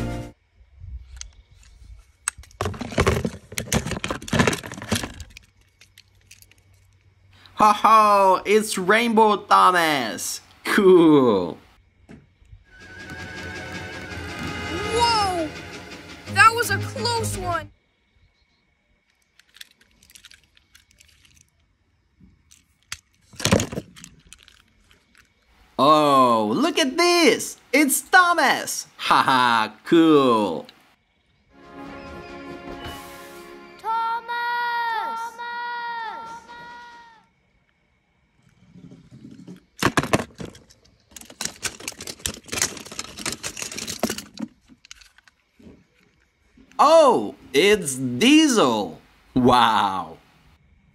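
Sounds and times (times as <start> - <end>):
toy trains and plastic balls clicking: 1.1 - 7.1, 19.0 - 21.8, 22.4 - 25.5, 39.2 - 46.2
toys clattering: 2.2 - 7.1, 19.0 - 25.5, 38.9 - 46.2.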